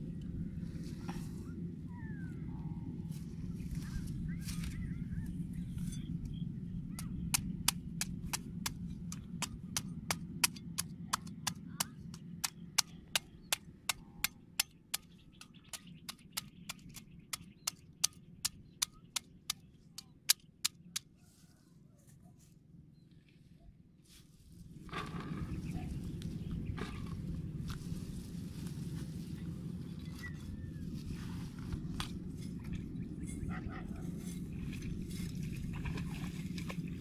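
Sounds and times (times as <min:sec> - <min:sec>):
low rumble: 0:00.0 - 0:11.1.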